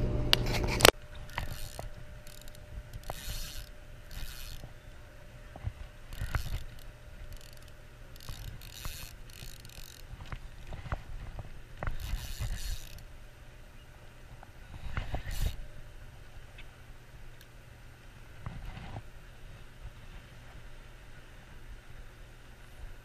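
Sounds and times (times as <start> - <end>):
steady low rumble: 0.0 - 22.0
light reel clicks: 0.3 - 4.8, 6.1 - 13.1, 14.9 - 15.6
fishing reel gears whirring: 0.8 - 4.8, 6.0 - 13.1, 14.7 - 15.6.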